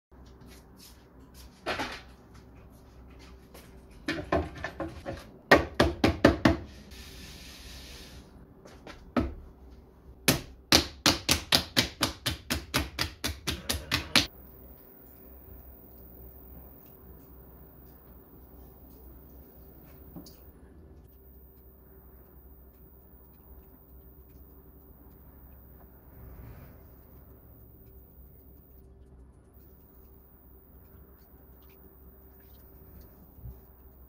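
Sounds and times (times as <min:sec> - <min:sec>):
hands slapping clay: 0:10.3 - 0:14.3.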